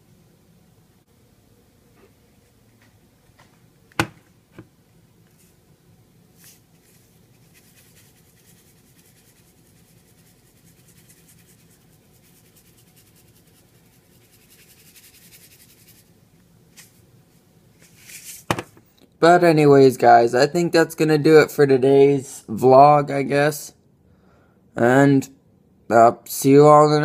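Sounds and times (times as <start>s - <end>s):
seasoning shaker rattling: 6.4s - 16.2s.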